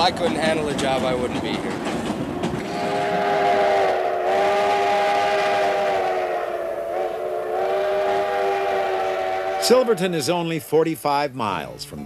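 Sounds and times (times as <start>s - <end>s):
steam locomotive chime whistle: 2.6s - 10.6s.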